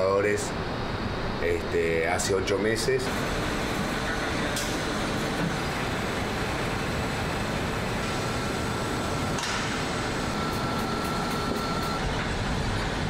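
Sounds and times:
conveyor machinery running: 0.0s - 13.0s
faint high whine: 0.0s - 13.0s.

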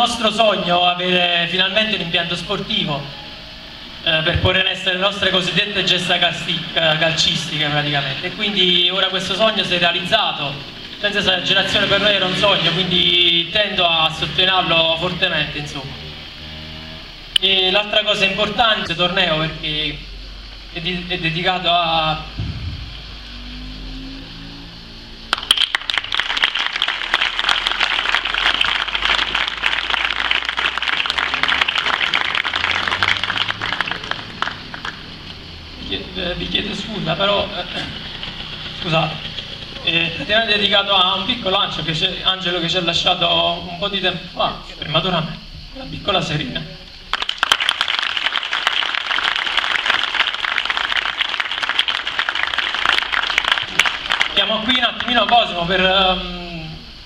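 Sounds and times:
crowd applauding: 25.3s - 35.3s, 47.1s - 55.6s.

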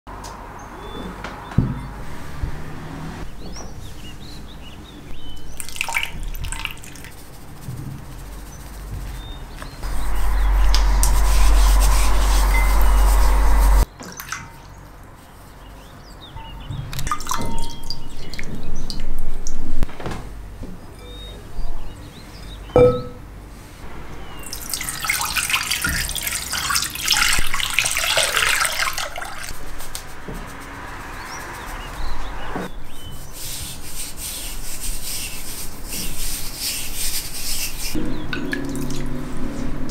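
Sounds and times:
water splashing in a glass bowl: 5.6s - 7.0s, 17.0s - 19.0s, 24.5s - 29.5s, 38.3s - 39.1s
steady rushing noise: 9.8s - 13.9s
knock on glass bowl: 22.8s - 23.2s.

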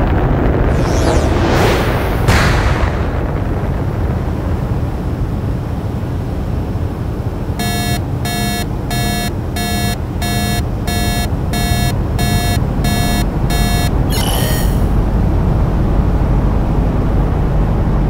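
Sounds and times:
electronic alarm beeping: 7.6s - 15.0s.

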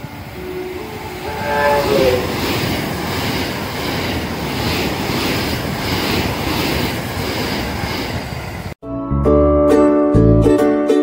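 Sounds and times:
electric train passing at speed: 0.0s - 8.8s.

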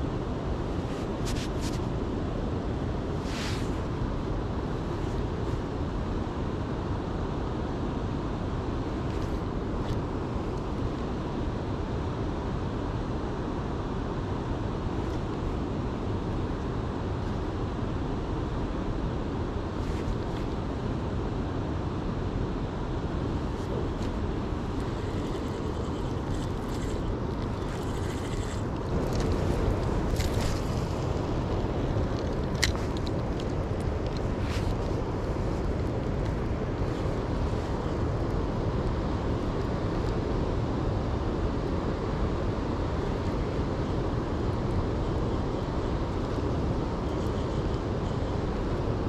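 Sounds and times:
low outdoor rumble: 0.0s - 49.0s
rustling: 23.6s - 35.0s.

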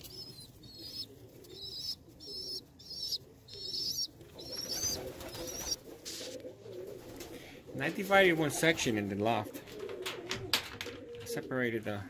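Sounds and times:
pigeons squeaky calls: 0.0s - 7.5s
pigeons cooing: 0.0s - 12.0s.

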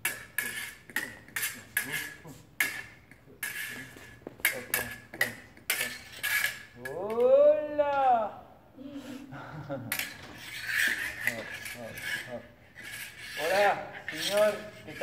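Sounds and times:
fencing blades clashing: 0.0s - 7.4s, 9.9s - 15.0s
person calling out: 6.9s - 9.2s.

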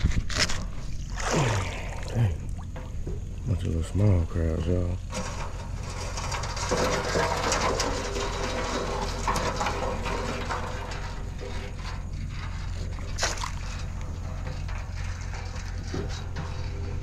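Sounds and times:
steady low rumble: 0.0s - 17.0s
net splashing into water: 1.0s - 2.7s, 13.2s - 13.6s
rope and wire net handling: 12.5s - 17.0s.

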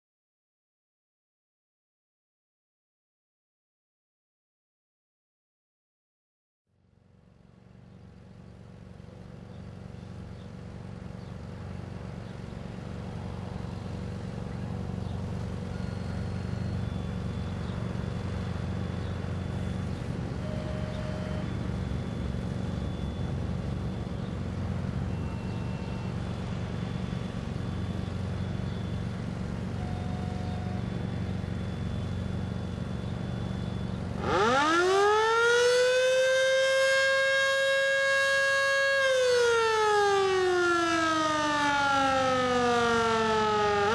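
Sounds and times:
deep steady rumble: 7.7s - 34.7s
warning siren winding up: 19.3s - 24.0s, 29.7s - 43.9s.

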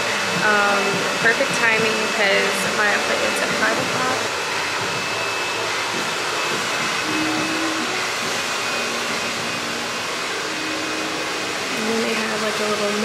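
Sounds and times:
hair dryers running: 0.0s - 13.0s.

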